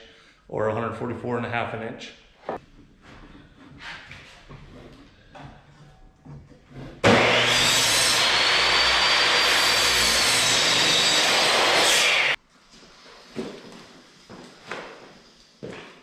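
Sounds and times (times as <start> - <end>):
miter saw motor whine: 7.1 - 12.4.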